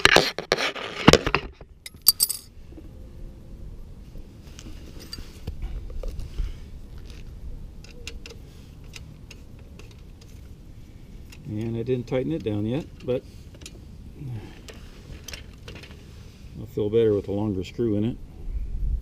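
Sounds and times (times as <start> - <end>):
small metal screws clinking: 1.8 - 2.5, 5.0 - 5.3.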